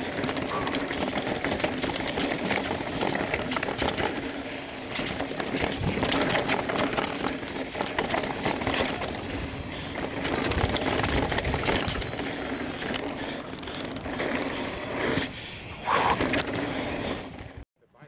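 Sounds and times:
bike knocking and rattling: 0.0s - 17.6s
bike tyre and wind noise: 0.0s - 17.6s.

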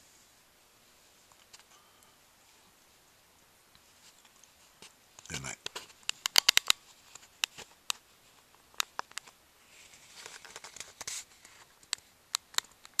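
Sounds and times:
soft rustle: 0.0s - 6.2s, 6.8s - 12.2s
sharp clicks: 5.2s - 6.8s.

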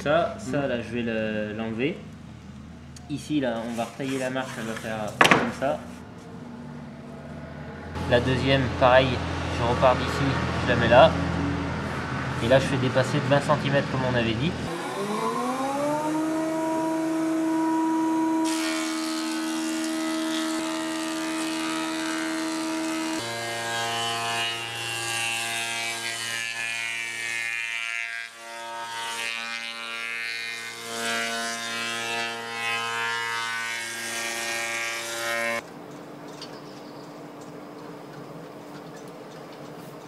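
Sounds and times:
deeper machine hum: 6.0s - 18.6s
motor whine: 14.6s - 18.5s.

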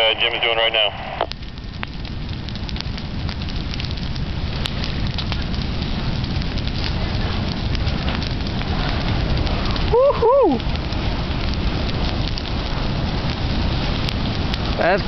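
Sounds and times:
fire rushing and crackling: 0.0s - 15.0s.

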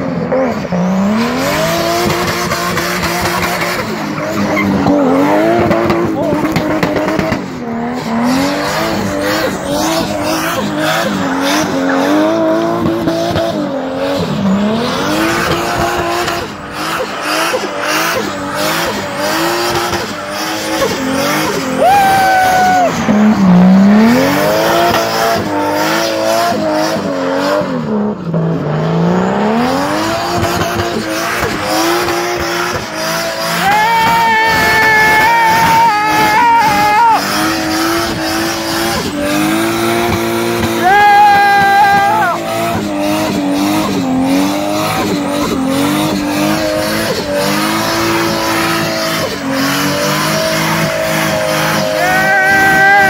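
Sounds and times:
car engine revving hard: 0.0s - 53.0s
tyres spinning and squealing: 0.7s - 27.1s, 29.8s - 53.0s.

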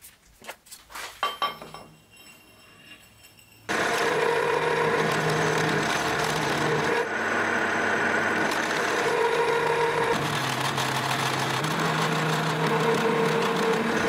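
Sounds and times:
milling machine cutting metal: 3.7s - 14.0s.

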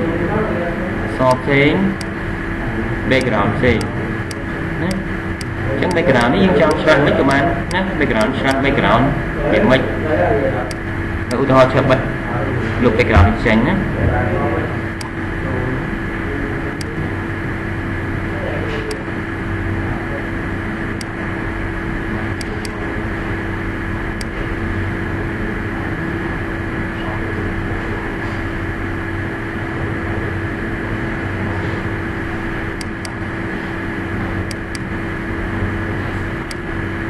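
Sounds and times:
steady hum and hiss: 0.0s - 37.0s
computer mouse clicks: 22.4s - 22.8s, 34.4s - 34.9s.

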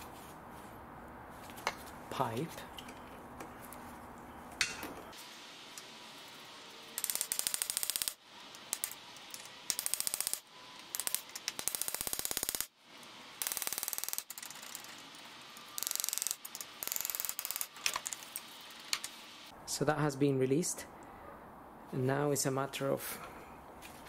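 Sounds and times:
hand ratchet clicking: 7.0s - 12.7s, 13.4s - 19.1s.

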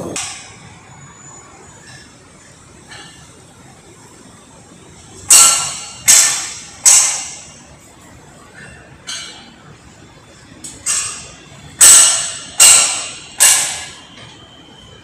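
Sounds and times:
metal clanks on steel: 10.8s - 13.9s.

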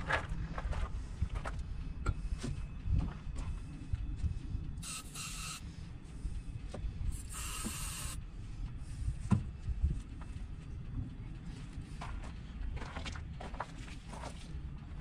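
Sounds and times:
short hissing bursts: 4.8s - 5.6s, 7.2s - 8.2s
low rumble: 8.2s - 15.0s.

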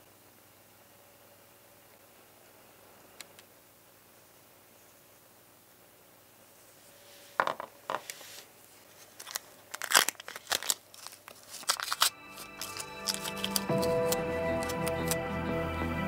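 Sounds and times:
masking tape ripping and crinkling: 9.0s - 15.2s
music: 12.1s - 16.0s.

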